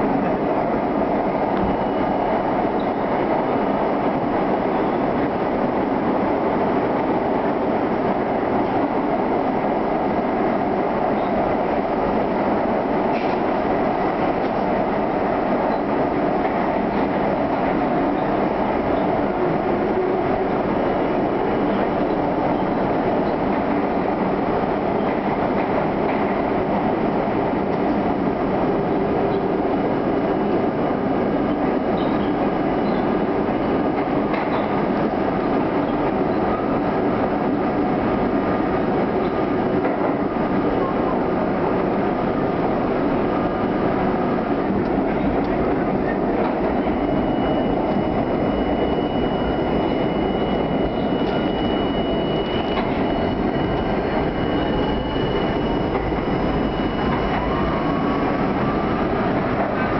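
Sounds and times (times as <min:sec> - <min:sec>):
subway train rumbling in tunnel: 0:00.0 - 0:59.9
high steady whine: 0:44.5 - 0:59.9.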